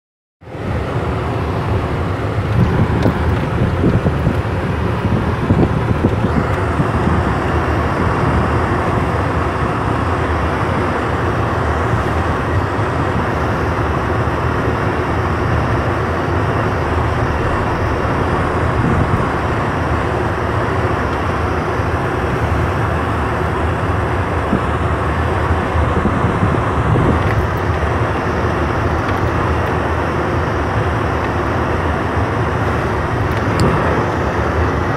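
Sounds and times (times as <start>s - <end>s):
vehicle engine and tyres rumbling: 0.4s - 34.9s
low bumps from rough road: 2.3s - 7.3s, 15.4s - 22.9s.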